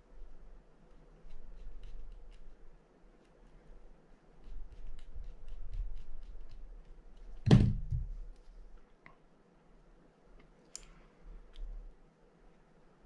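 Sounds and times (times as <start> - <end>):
heavy thunk: 7.5 - 8.1
light clicks of reel parts: 10.4 - 11.7.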